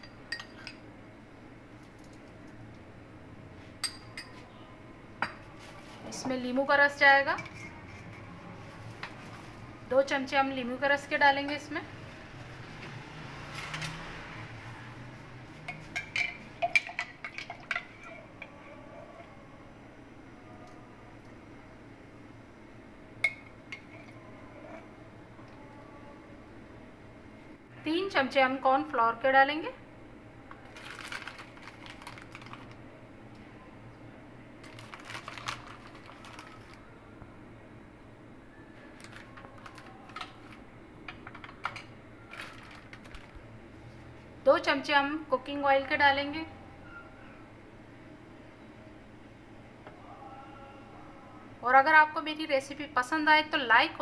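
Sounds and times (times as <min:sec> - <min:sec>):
metal spoon clinking against bowl: 0:00.0 - 0:00.8, 0:03.8 - 0:04.4.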